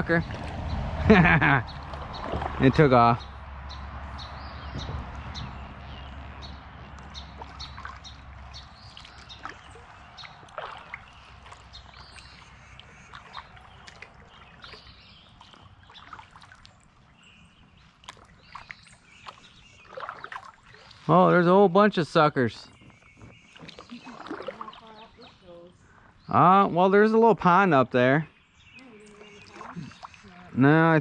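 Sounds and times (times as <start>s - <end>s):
low rumble: 0.0s - 8.9s
water sloshing around kayak: 0.0s - 26.3s, 28.4s - 31.0s.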